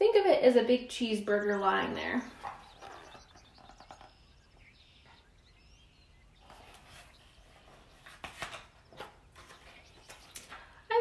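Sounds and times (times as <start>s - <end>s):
faint bird chirps: 0.8s - 11.0s
book page turning: 6.5s - 10.6s.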